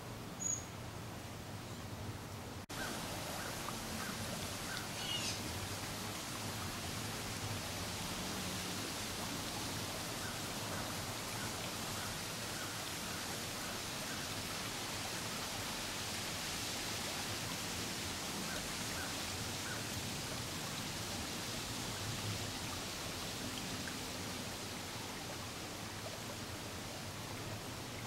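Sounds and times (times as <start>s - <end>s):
steady outdoor hiss: 0.0s - 28.0s
faint short chirps: 0.4s - 0.7s.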